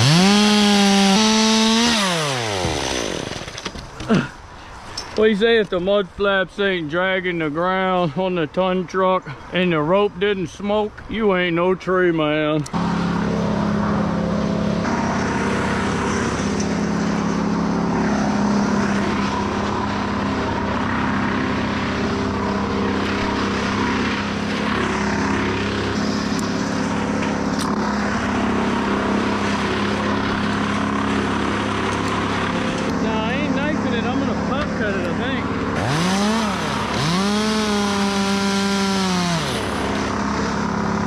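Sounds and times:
engine running steadily: 0:12.4 - 0:41.0.

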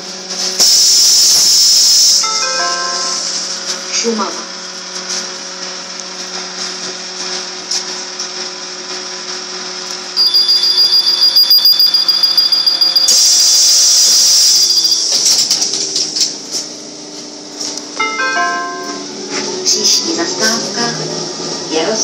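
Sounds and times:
trolleybus hum: 0:00.0 - 0:05.2, 0:10.2 - 0:22.0
air hiss of pneumatic doors: 0:00.4 - 0:02.2, 0:13.1 - 0:15.6
high pulsing door-warning beep: 0:00.8 - 0:03.4, 0:10.2 - 0:15.6.

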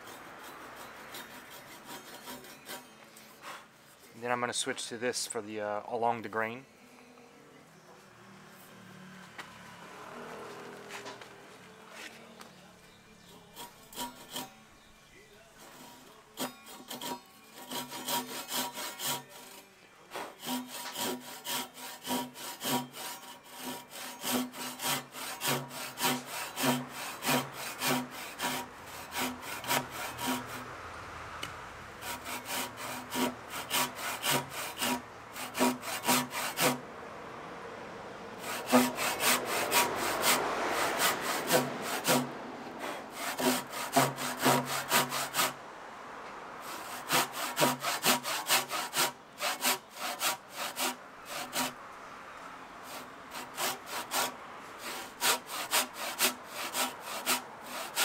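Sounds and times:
hand saw cutting wood: 0:00.0 - 0:04.1, 0:13.3 - 0:14.6, 0:15.6 - 0:30.7, 0:32.0 - 0:36.8, 0:38.4 - 0:45.6, 0:46.6 - 0:51.8, 0:52.8 - 0:58.0.

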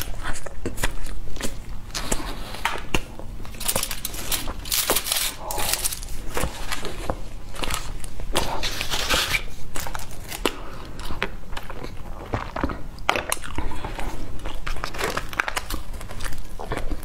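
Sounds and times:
chewing food with mouth smacks: 0:09.7 - 0:17.0.

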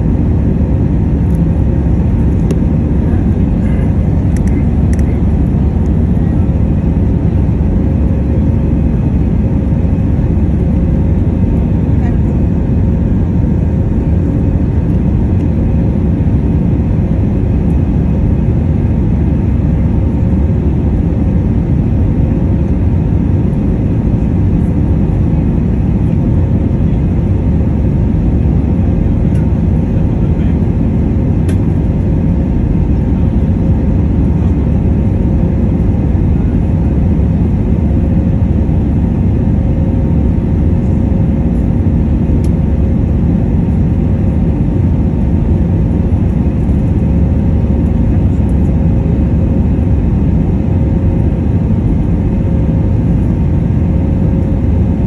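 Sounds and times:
airplane cabin roar: 0:00.0 - 0:55.0
faint tonal hum: 0:00.0 - 0:55.0.

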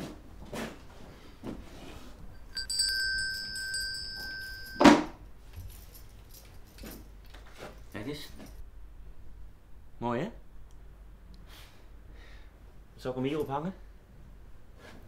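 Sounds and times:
bright metallic chime: 0:02.3 - 0:05.2.

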